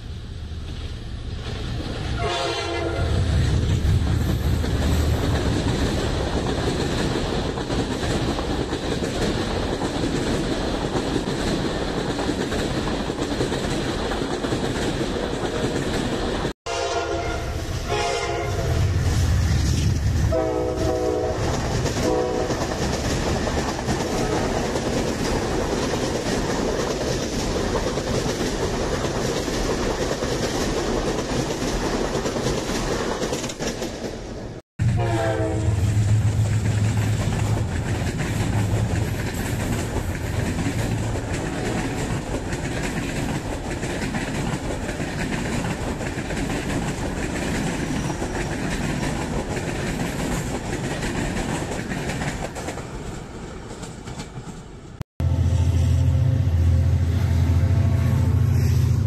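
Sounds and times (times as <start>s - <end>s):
train coaches rumbling and clattering: 0.0s - 55.0s, 55.7s - 59.0s
train horn: 2.2s - 3.3s, 16.7s - 19.0s, 20.3s - 22.8s, 24.0s - 24.6s, 34.8s - 36.4s, 55.2s - 59.0s.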